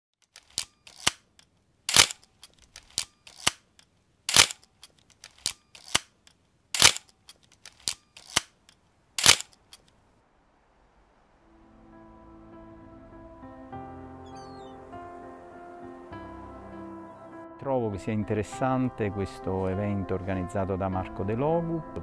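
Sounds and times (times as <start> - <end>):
sharp clicks: 0.2 - 10.0.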